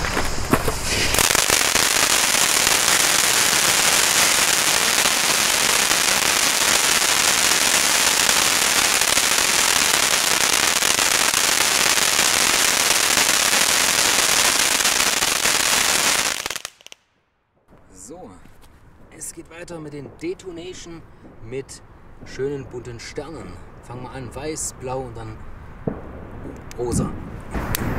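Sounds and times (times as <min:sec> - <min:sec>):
spark hiss: 0:00.0 - 0:17.1
firework fountain crackling: 0:00.0 - 0:24.0, 0:25.8 - 0:27.9.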